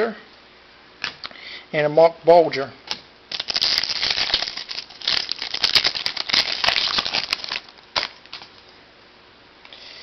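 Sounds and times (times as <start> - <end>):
foil wrapper crinkling and tearing: 3.3 - 8.6.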